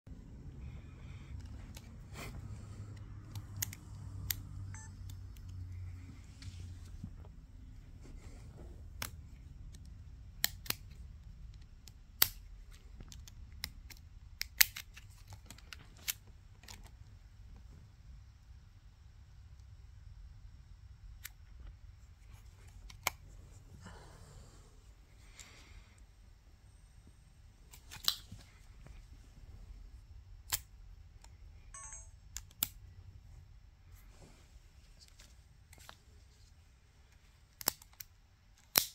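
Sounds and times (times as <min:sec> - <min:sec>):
short electronic beep: 0:31.8 - 0:32.2.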